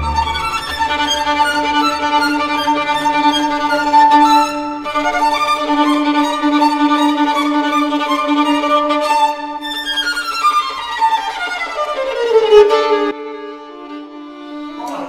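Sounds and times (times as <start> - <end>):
bowed strings music: 0.0 - 15.0.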